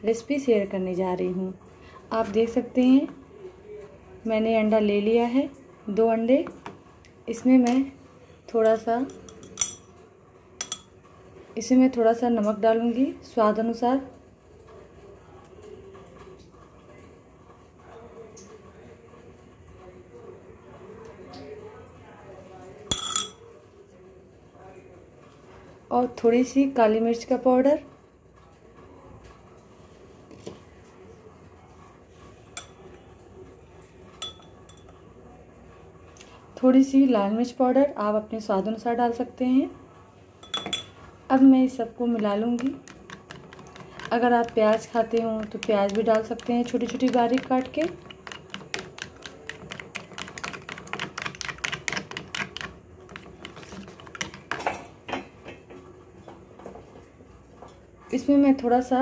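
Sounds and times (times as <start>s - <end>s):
faint room noise: 0.0s - 59.0s
plastic spoon knocking on bowl: 42.1s - 55.7s.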